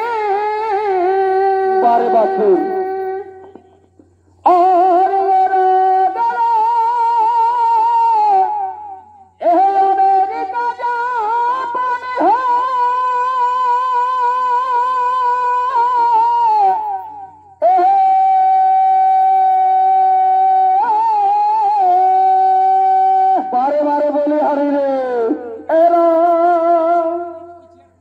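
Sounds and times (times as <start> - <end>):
shehnai melody: 0.0 - 3.7, 4.4 - 27.7.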